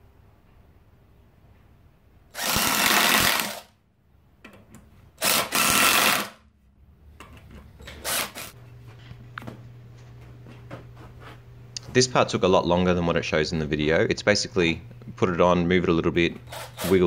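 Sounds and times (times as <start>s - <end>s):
power drill drilling into wood: 2.4s - 3.7s, 5.2s - 6.4s, 8.0s - 8.5s, 16.5s - 17.0s.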